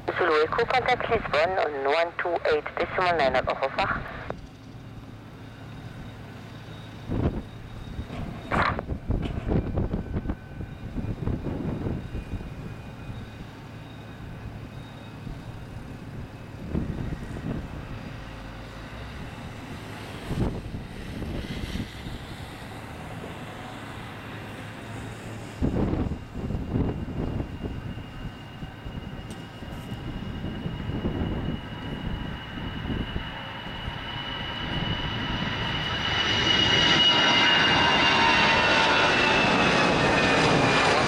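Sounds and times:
distant jet engines rumbling: 0.0 - 41.0
wind buffeting the microphone: 7.0 - 13.4, 15.3 - 18.2, 19.2 - 23.4, 25.3 - 34.0.

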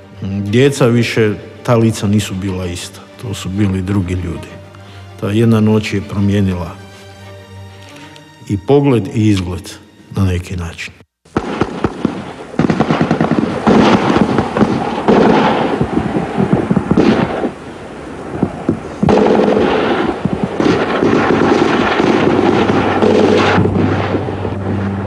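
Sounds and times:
rapid gunfire: 11.4 - 16.0, 16.8 - 17.5, 19.0 - 23.6.

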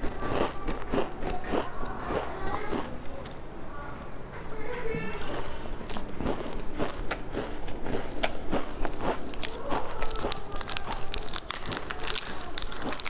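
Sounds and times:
snack wrapper crinkling: 5.9 - 13.0.

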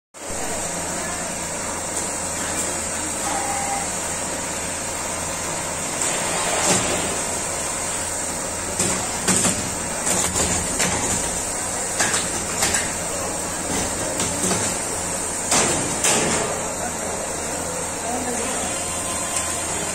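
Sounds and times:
quilting machine humming: 0.3 - 19.9
machine frame knocking and clattering: 8.8 - 13.0.

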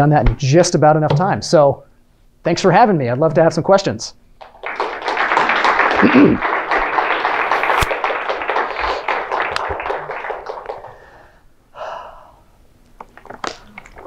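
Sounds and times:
audience applause: 4.4 - 11.2.

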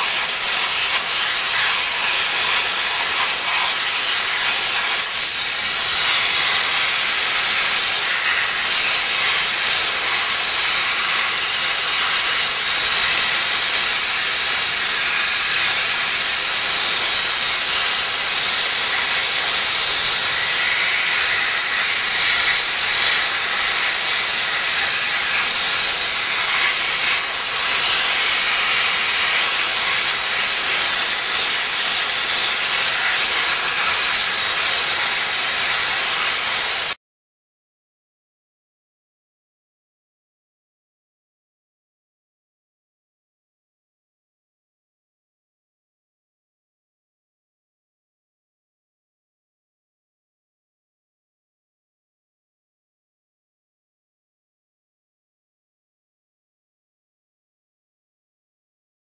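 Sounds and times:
steam hissing: 0.0 - 37.0.

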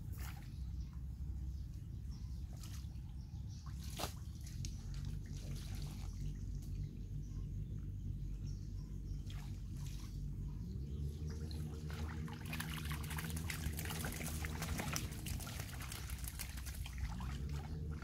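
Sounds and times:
water splashing and dripping: 3.6 - 6.8, 11.1 - 18.0
low rumble: 4.3 - 18.0.

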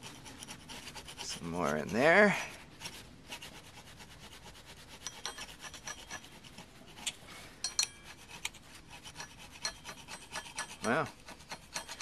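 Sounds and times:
chisel scraping metal: 0.0 - 2.2, 4.6 - 12.0.

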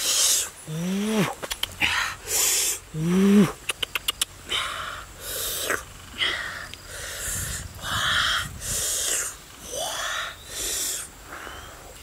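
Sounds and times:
breathy sniffs and exhalations: 0.0 - 3.6, 4.5 - 12.0
person humming mmm: 0.2 - 1.9, 2.9 - 4.7
wet lip smacks and chewing: 3.6 - 4.3.

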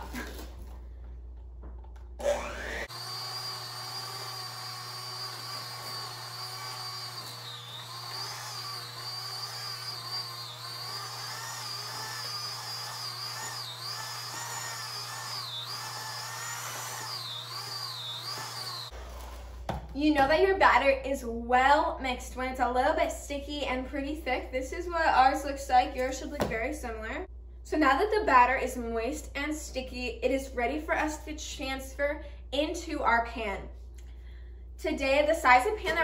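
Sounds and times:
electric hand mixer whining: 2.2 - 19.5.

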